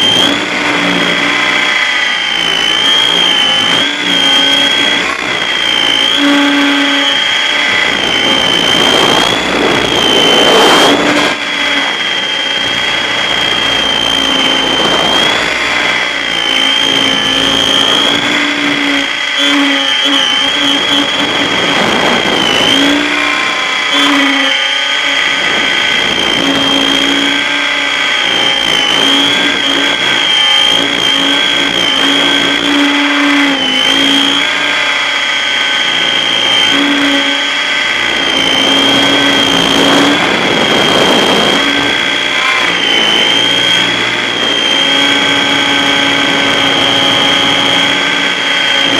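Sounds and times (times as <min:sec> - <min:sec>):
rc helicopter motor whine: 0:00.0 - 0:48.9
wind noise rushes: 0:00.0 - 0:48.9.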